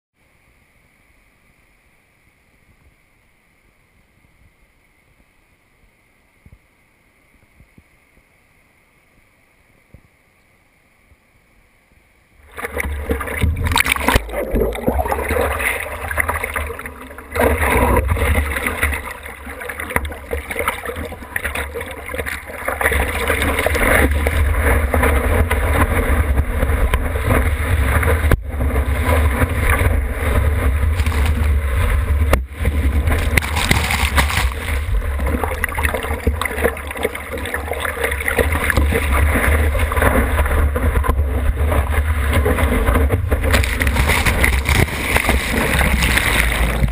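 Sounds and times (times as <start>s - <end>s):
steady low rumble: 12.4s - 46.9s
water splashing and rushing: 12.4s - 46.9s.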